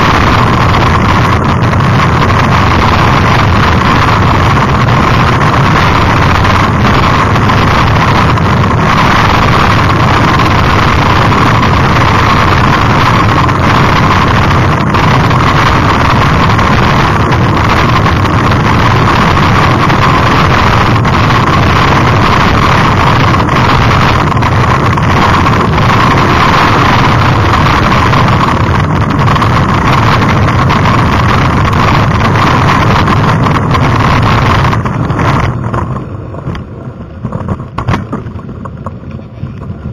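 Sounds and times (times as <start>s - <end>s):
bike clicks and rattles: 0.0s - 39.9s
wind rush on microphone: 0.0s - 39.9s.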